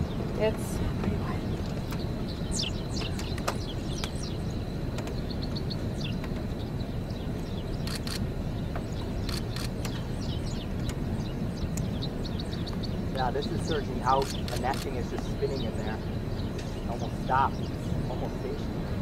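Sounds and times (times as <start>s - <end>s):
small birds chirping: 0.0s - 19.0s
wind on microphone: 0.0s - 19.0s
sharp clicks: 7.8s - 8.3s, 9.2s - 10.0s.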